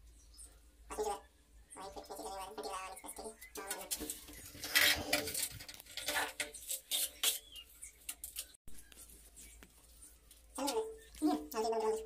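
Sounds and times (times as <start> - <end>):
tools scraping tiles: 3.6 - 8.6.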